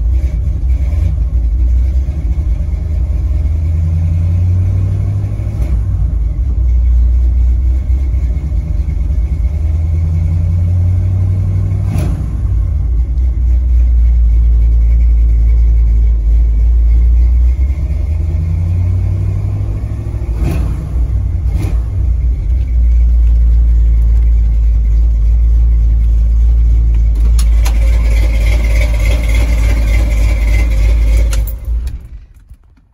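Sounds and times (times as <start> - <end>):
engine rumbling: 0.0 - 32.9.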